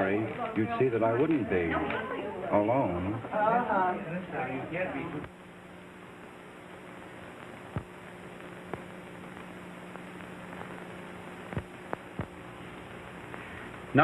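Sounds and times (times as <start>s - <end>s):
steady hiss: 3.0s - 14.0s
sharp clicks and pops: 7.2s - 13.9s.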